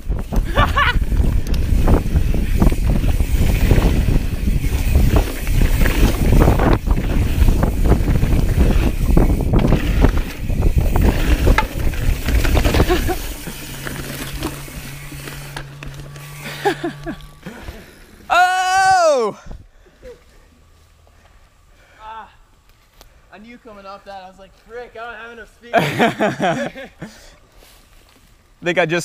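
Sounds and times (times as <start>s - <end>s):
wind buffeting microphone: 0.0s - 14.1s
bike tyres and frame rattling: 0.0s - 19.2s
steady low hum: 0.4s - 18.3s.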